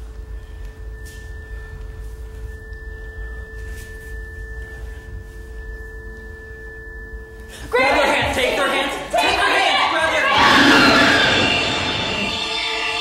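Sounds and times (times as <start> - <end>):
steady pure tones: 0.0 - 13.0
low rumble: 10.3 - 13.0.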